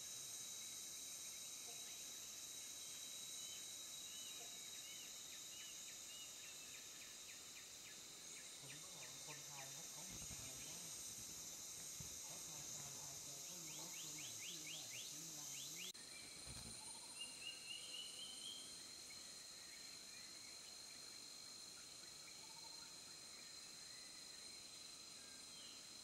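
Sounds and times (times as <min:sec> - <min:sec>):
insects buzzing: 0:00.0 - 0:26.0.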